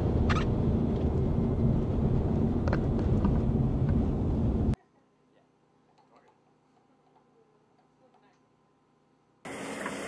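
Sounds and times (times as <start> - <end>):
car driving fast interior rumble: 0.0 - 4.8.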